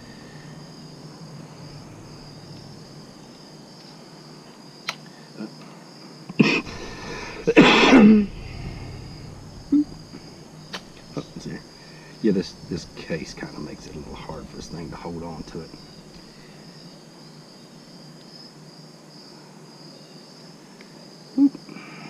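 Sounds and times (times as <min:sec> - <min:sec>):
crickets chirring: 0:00.0 - 0:22.0
man coughing: 0:06.4 - 0:08.3.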